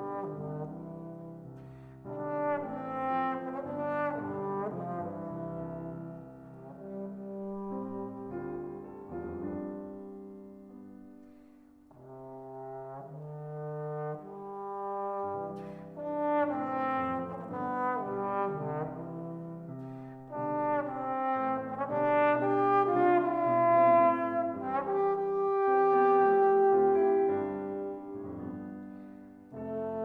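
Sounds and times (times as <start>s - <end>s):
trombone melody: 0.0s - 10.0s, 11.9s - 30.0s
piano accompaniment: 0.0s - 30.0s.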